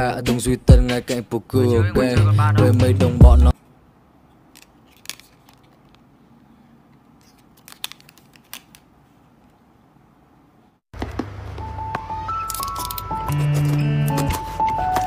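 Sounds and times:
music: 0.0 - 3.5, 11.5 - 15.0
cards clicking and rustling: 4.5 - 6.1, 7.2 - 8.9, 12.4 - 15.0.

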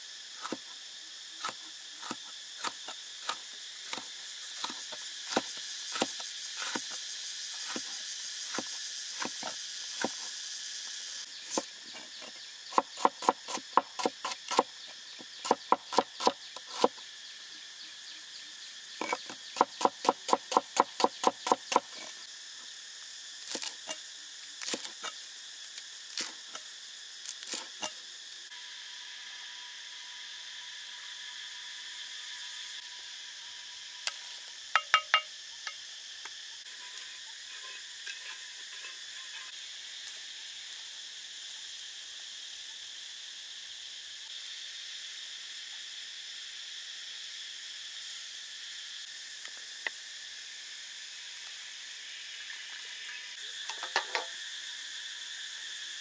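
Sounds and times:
insects chirping chorus: 0.0 - 56.0.

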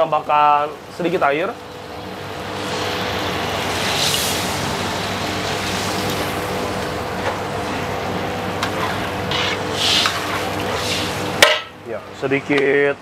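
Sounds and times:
gas burner roaring: 0.0 - 13.0.

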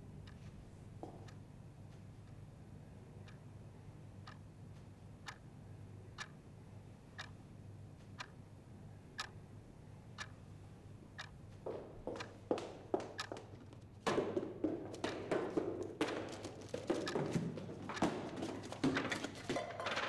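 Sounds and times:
low room hum: 0.0 - 20.0
clock ticking: 3.2 - 3.5, 4.2 - 4.5, 5.2 - 5.5, 6.1 - 6.5, 7.1 - 7.4, 8.2 - 8.4, 9.2 - 9.4, 10.1 - 11.5, 12.1 - 13.8, 16.9 - 18.2.

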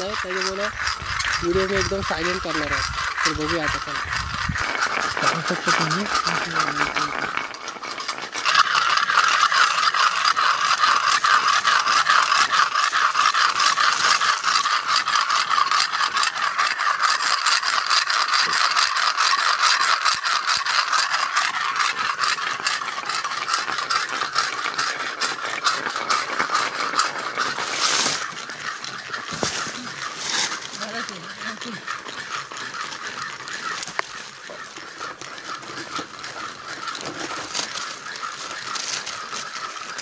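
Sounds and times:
stones scraping together: 0.0 - 40.0.

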